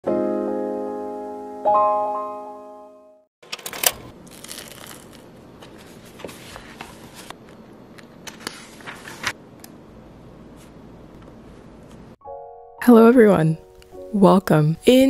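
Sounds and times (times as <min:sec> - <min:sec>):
sharp paper clicks: 0:03.5 - 0:05.3
book pages rustling: 0:03.5 - 0:09.4.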